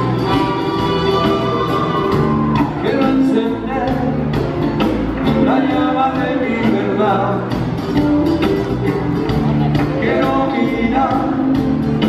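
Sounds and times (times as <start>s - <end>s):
person singing: 0.0s - 4.4s, 5.2s - 7.6s, 9.6s - 11.8s
bass and guitars: 0.0s - 12.0s
drum kit beat: 0.0s - 12.0s.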